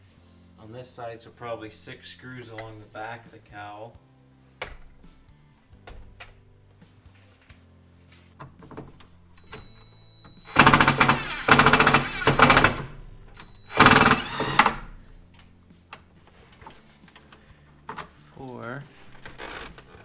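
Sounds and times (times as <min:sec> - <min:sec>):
impact driver hammering: 0:10.5 - 0:14.9.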